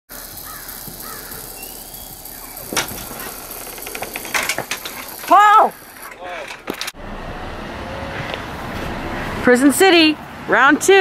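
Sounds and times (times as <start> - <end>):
crow cawing: 0.2 - 1.5
sharp clicks and knocks: 2.5 - 7.0.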